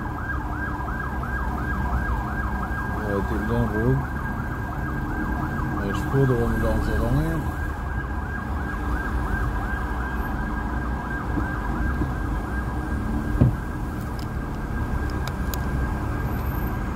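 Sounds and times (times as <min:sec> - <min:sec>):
ambulance siren yelping: 0:00.0 - 0:16.3
idling traffic rumble: 0:00.0 - 0:16.9
short thump: 0:13.4 - 0:13.7.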